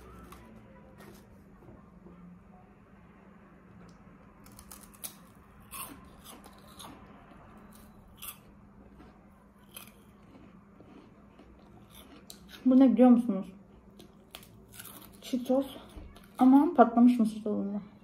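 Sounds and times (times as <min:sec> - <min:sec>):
chips crunching when bitten: 0:04.4 - 0:12.8, 0:13.9 - 0:15.4.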